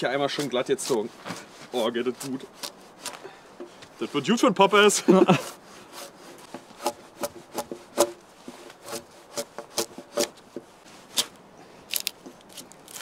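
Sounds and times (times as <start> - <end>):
drawknife scraping wood: 0.2 - 4.3, 5.3 - 11.4.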